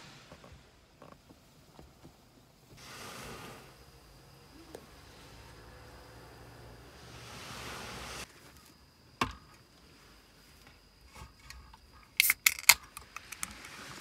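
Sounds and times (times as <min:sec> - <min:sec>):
can pull tab cracking open: 0:12.2 - 0:13.7.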